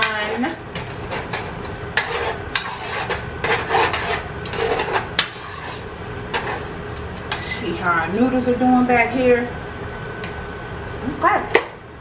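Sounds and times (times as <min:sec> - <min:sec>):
spoon stirring and scraping pot: 0:00.0 - 0:07.8.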